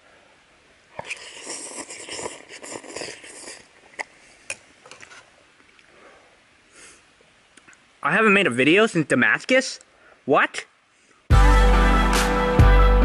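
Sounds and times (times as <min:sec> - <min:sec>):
man slurping noodles: 0:00.9 - 0:04.2.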